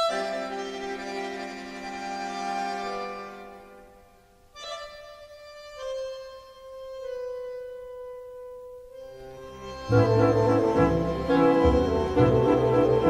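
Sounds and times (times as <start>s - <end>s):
solo reed instrument: 9.2s - 13.0s
full orchestral music: 9.5s - 13.0s.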